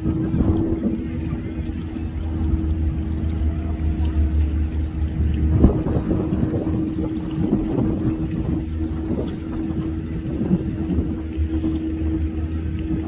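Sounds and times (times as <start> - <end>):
boat motor running: 0.0 - 13.0.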